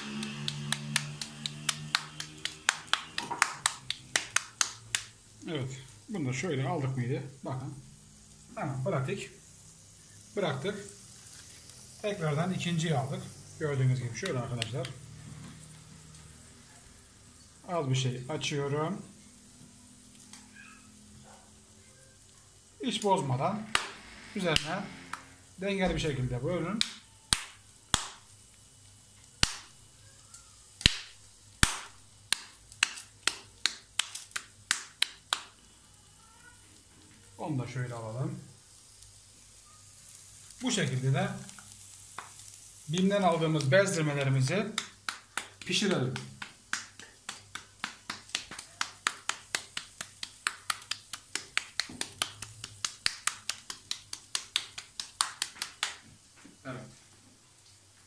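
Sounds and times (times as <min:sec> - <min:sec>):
hands patting minced meat: 0:00.0 - 0:05.2, 0:14.1 - 0:15.0, 0:23.7 - 0:25.2, 0:26.5 - 0:28.3, 0:29.4 - 0:29.8, 0:30.8 - 0:35.6, 0:41.5 - 0:56.4.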